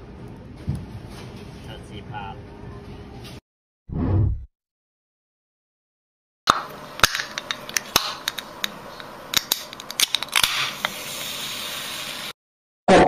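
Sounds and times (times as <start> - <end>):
can pull tab clicking: 6.5 - 10.6
can cracking open: 6.5 - 11.0
carbonated drink hissing: 7.2 - 12.4.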